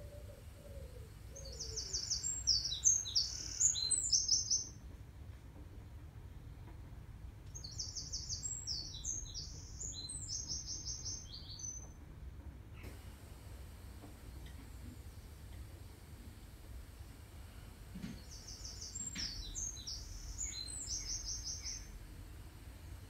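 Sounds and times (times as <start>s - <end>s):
songbird chirping: 0.0s - 4.8s, 7.5s - 12.0s, 18.0s - 22.6s.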